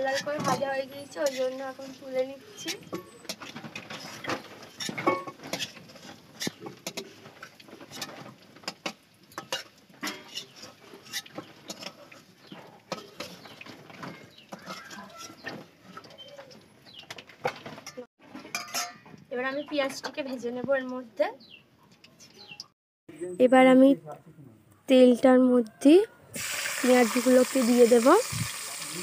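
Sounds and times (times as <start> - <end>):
metal spoon scraping a wok: 9.4 - 13.5.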